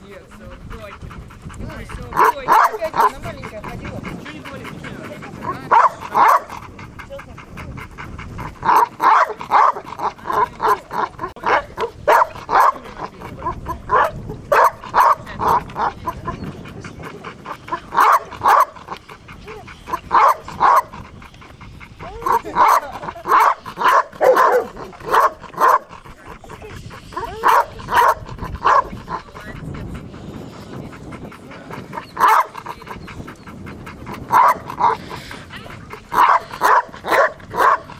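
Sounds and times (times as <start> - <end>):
dog barking: 2.1 - 3.6, 5.4 - 6.6, 8.4 - 16.3, 17.7 - 19.0, 19.9 - 21.0, 22.1 - 26.0, 27.1 - 29.5, 32.2 - 32.7, 34.3 - 35.1, 36.1 - 37.9.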